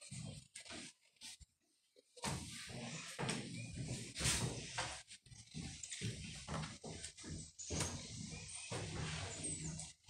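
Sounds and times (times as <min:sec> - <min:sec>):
footsteps on wooden floorboards: 0:02.2 - 0:09.9.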